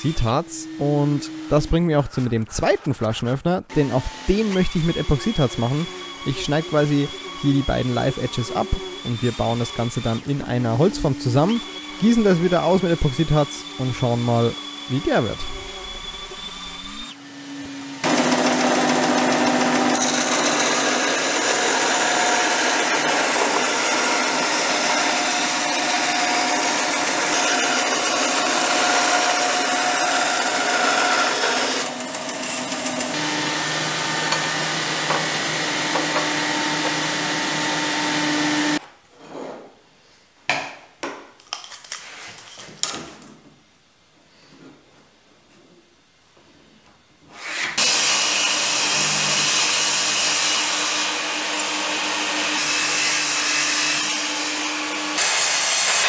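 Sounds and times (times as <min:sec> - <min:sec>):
bandsaw cutting wood: 0:03.7 - 0:38.8, 0:47.4 - 0:56.0.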